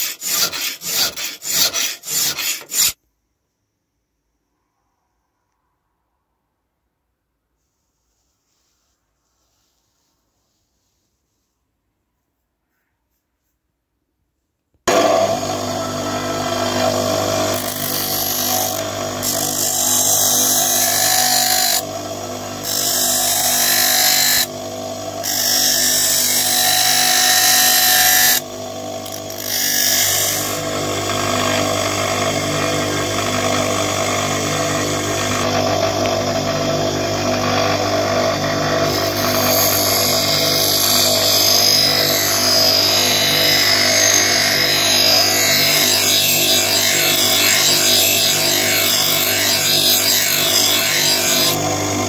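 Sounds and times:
bench grinder motor hum: 14.9s - 52.0s.

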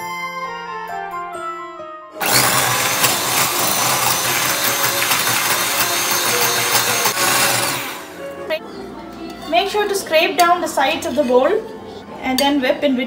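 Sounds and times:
electric hand mixer running: 2.2s - 8.2s.

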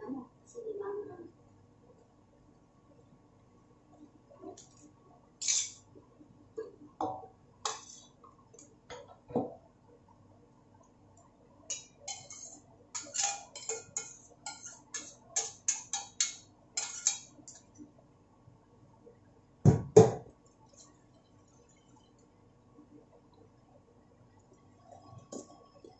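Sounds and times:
metal utensil scraping frying pan: 5.4s - 5.8s, 7.7s - 8.1s, 11.7s - 17.3s.

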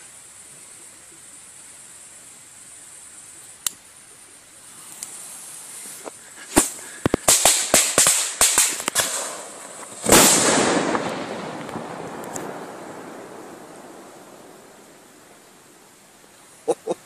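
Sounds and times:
firework fuse hissing: 0.0s - 16.7s
firecracker bangs: 6.5s - 14.8s.

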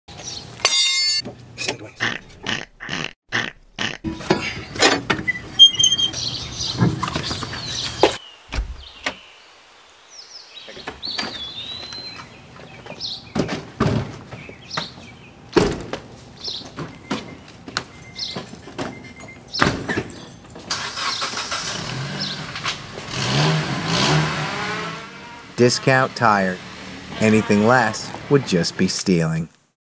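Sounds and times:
birds chirping faintly: 4.4s - 15.6s.

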